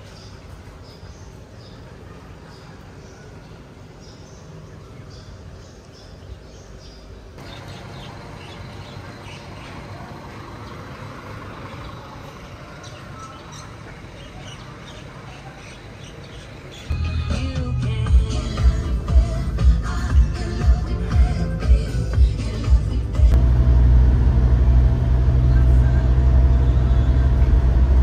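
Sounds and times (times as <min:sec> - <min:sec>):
low outdoor rumble: 0:00.0 - 0:28.0
loud music: 0:16.9 - 0:23.4.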